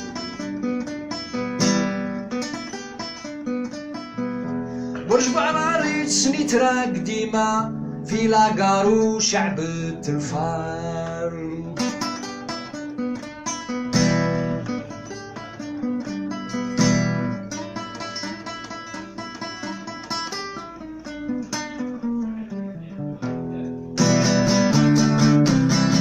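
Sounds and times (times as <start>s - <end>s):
acoustic guitar plucked melody: 0.0s - 26.0s
guitar strummed chords: 0.0s - 26.0s.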